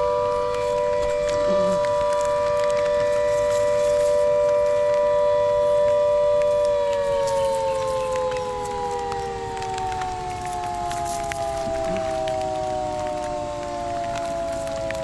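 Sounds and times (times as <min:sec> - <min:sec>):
warning siren wailing: 0:00.0 - 0:15.0.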